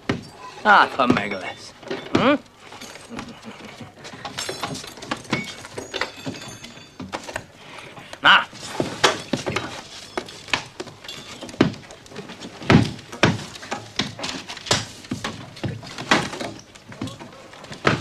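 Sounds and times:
wooden knocks and thumps: 0:01.0 - 0:02.4, 0:08.7 - 0:18.0.

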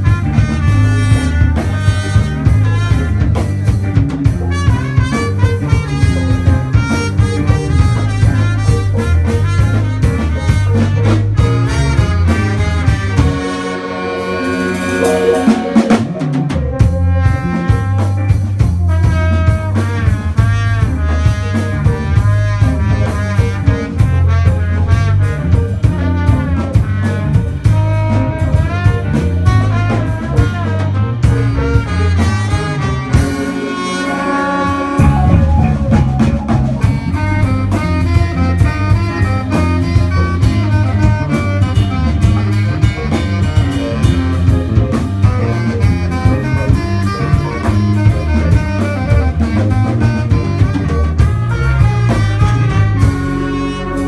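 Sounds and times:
live band playing instrumental music: 0:00.0 - 0:54.0.

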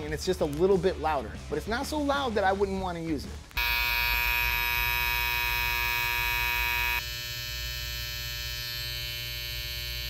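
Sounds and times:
hair trimmer buzzing: 0:03.6 - 0:10.0
quieter hair trimmer buzzing: 0:03.6 - 0:10.0.

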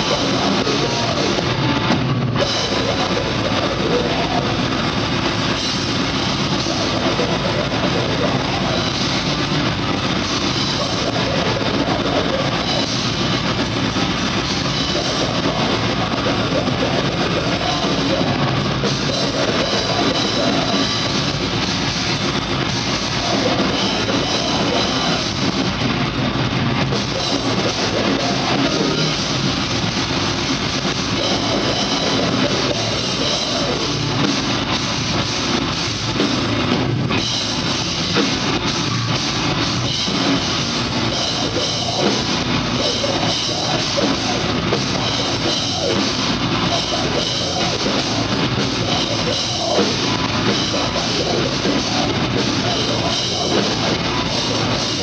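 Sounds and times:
distorted electric guitar: 0:00.0 - 0:55.0
fast pounding drum kit: 0:00.0 - 0:55.0.

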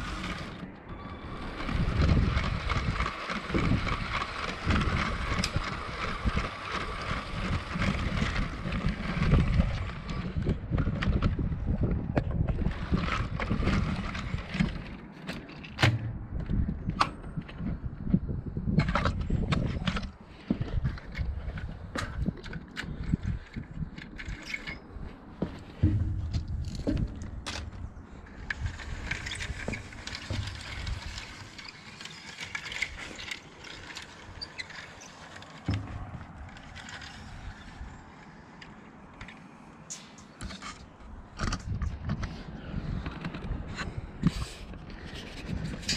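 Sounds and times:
wind buffeting microphone: 0:00.0 - 0:15.1, 0:15.8 - 0:39.2, 0:39.9 - 0:45.9
sharp clicks and knocks: 0:01.6 - 0:17.9, 0:18.7 - 0:37.5.

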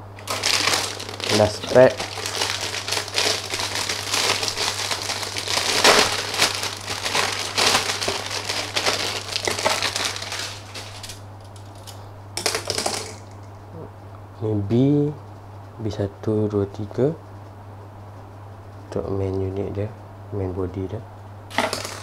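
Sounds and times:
plastic bag crinkling: 0:00.0 - 0:13.4, 0:21.5 - 0:22.0.

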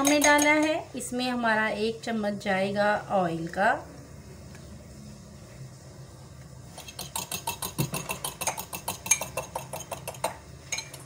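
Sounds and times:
fork clinking against a mug: 0:00.0 - 0:00.8, 0:06.8 - 0:11.0.

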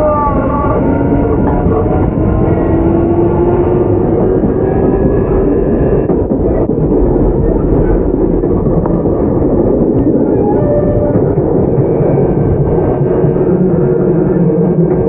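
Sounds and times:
train wheels rumbling on rails: 0:00.0 - 0:15.0
brief tone: 0:10.2 - 0:11.4.

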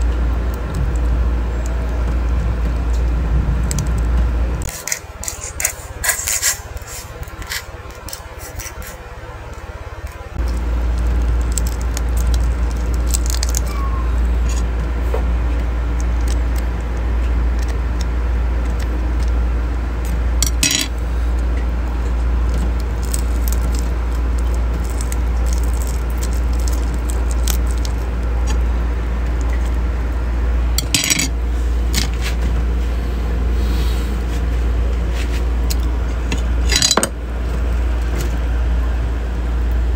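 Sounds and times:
steady low rumble: 0:00.0 - 0:39.9
chopsticks scraping ceramic plate: 0:04.7 - 0:09.0, 0:30.8 - 0:31.3.

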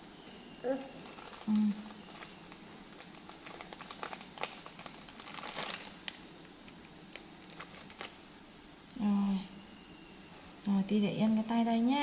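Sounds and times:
plastic packaging crinkling: 0:00.9 - 0:06.2, 0:07.1 - 0:08.2.

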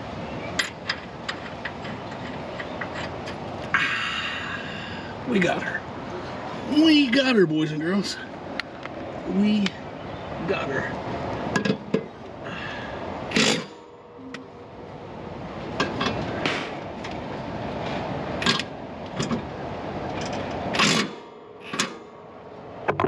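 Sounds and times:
metal tools clanking: 0:00.6 - 0:03.4.

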